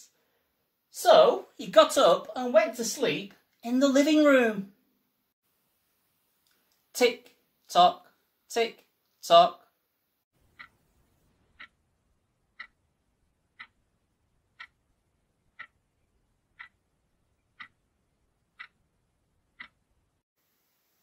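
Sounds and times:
alarm clock ticking: 0:11.6 - 0:11.8, 0:12.6 - 0:12.8, 0:13.5 - 0:13.8, 0:14.6 - 0:14.8, 0:15.6 - 0:15.8, 0:16.6 - 0:16.8, 0:17.5 - 0:17.8, 0:18.6 - 0:18.8, 0:19.6 - 0:19.8.

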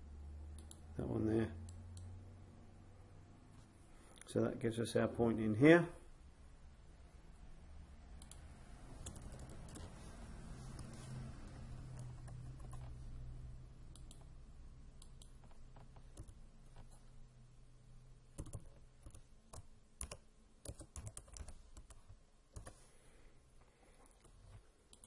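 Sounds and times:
faint keyboard typing: 0:08.2 - 0:13.1, 0:13.9 - 0:14.4, 0:15.0 - 0:17.1, 0:18.3 - 0:22.9, 0:23.6 - 0:25.0.

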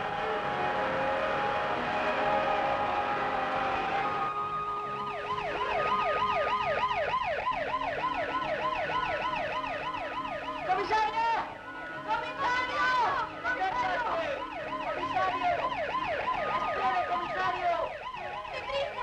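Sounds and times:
siren yelping: 0:00.0 - 0:19.0.

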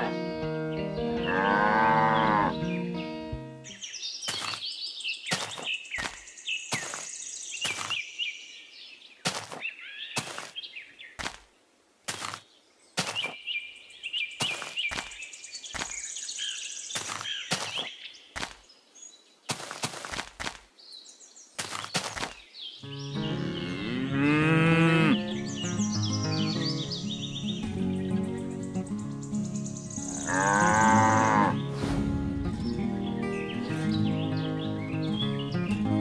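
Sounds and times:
birds chirping: 0:00.0 - 0:20.1, 0:20.7 - 0:36.0.

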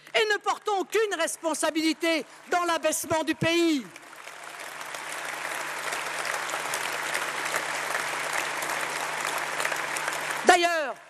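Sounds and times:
large audience applauding: 0:02.3 - 0:11.0.

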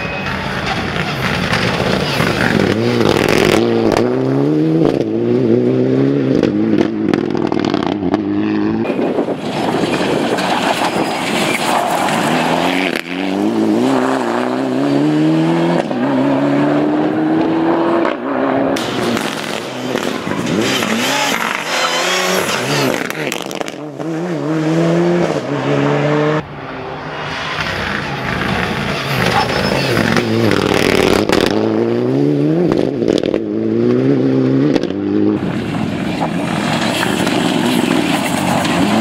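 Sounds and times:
car engine revving hard: 0:01.5 - 0:08.9, 0:12.2 - 0:26.4, 0:27.5 - 0:35.4.

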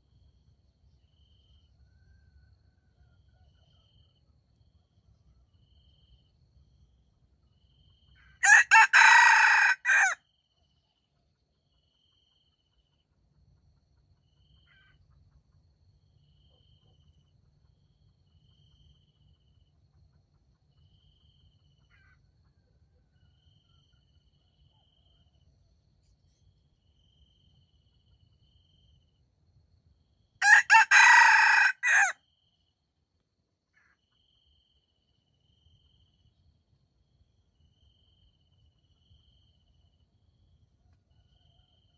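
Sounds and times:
faint insect chirps: 0:00.0 - 0:08.4, 0:10.2 - 0:30.8, 0:32.2 - 0:41.9
rooster crowing: 0:08.4 - 0:10.2, 0:30.4 - 0:32.2.

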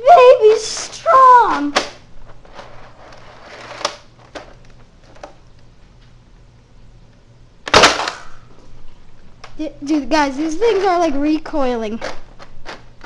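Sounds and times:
toy blaster shot: 0:07.7 - 0:08.4.

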